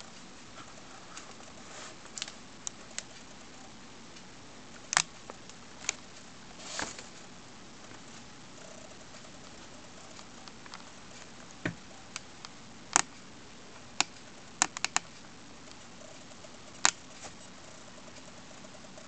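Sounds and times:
faint steady hiss: 0.0 - 19.0
sharp clicks and taps: 14.0 - 15.1.

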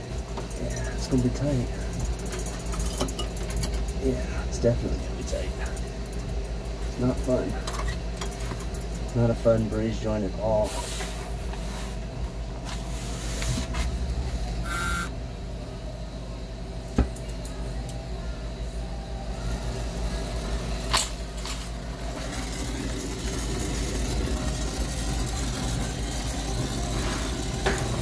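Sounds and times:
low machinery hum: 0.0 - 28.0
torch flame hissing: 10.5 - 15.0, 21.7 - 28.0.

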